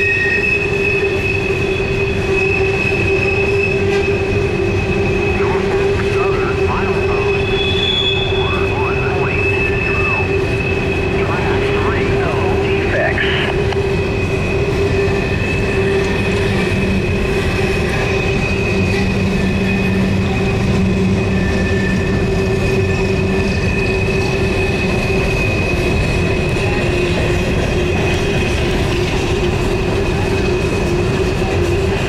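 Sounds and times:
high-pitched wheel squeal: 0.0s - 11.6s, 14.7s - 26.1s
rumble of wheels on rail: 0.0s - 32.0s.

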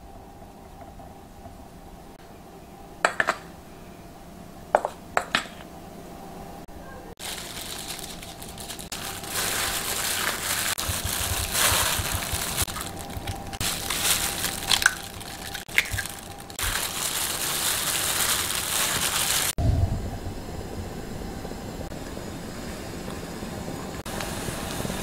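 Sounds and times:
hand mixing wet food in bowl: 7.9s - 19.6s.

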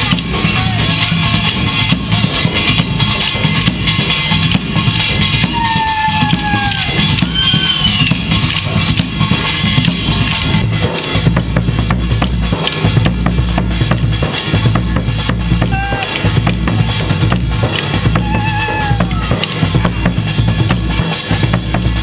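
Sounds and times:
bass drum: 0.0s - 22.0s
snare drums beating: 4.5s - 22.0s.

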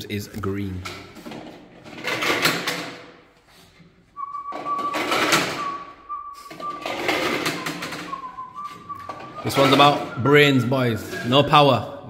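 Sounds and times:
plastic rings clattering down slots: 1.2s - 3.2s.

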